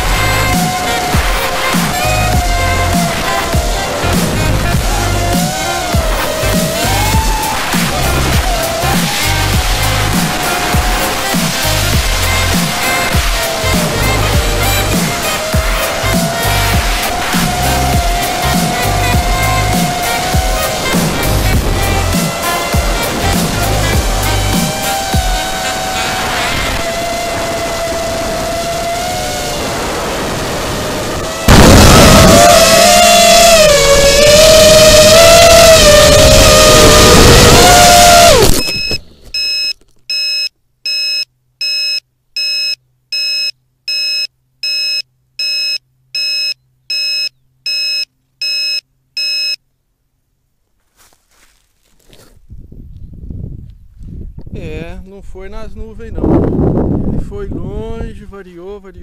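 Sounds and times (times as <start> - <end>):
electronic dance music: 0.0 - 26.8, 31.3 - 38.5
short high electronic beeps: 38.4 - 49.6.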